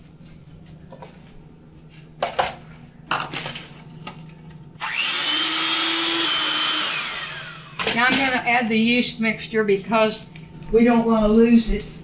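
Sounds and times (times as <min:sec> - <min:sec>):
electric hand mixer whining: 0:04.8 - 0:07.9.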